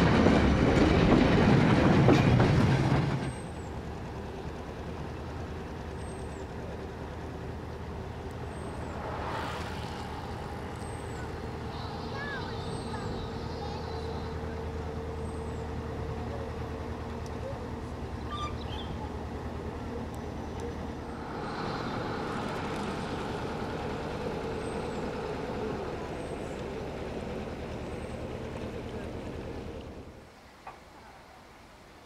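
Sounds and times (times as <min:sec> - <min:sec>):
boat engine humming: 0:03.4 - 0:30.5
hiss: 0:21.1 - 0:24.2.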